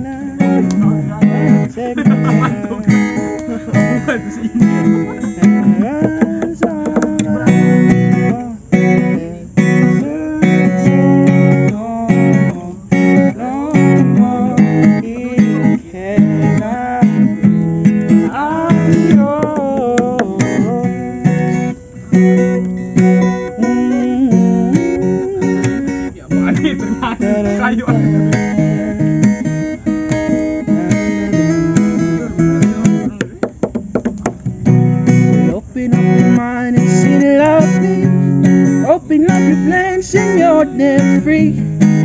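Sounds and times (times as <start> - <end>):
acoustic guitar strumming: 0.0 - 42.0.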